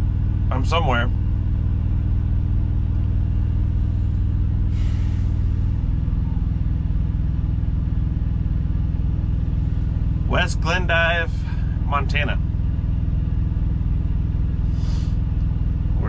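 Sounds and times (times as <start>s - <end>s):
diesel truck engine idling: 0.0s - 16.0s
short hiss: 14.7s - 15.2s.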